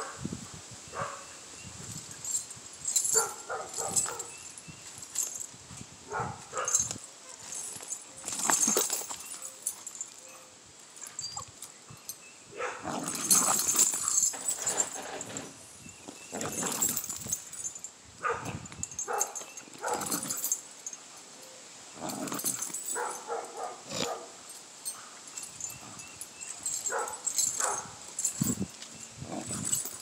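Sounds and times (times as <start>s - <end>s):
chain clinking: 1.0s - 30.0s
dog growling noises: 12.6s - 15.6s, 16.2s - 17.3s, 22.0s - 24.3s, 29.2s - 30.0s.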